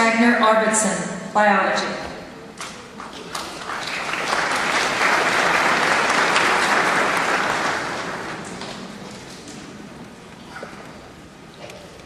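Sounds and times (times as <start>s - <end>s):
audience applauding: 3.0s - 9.5s.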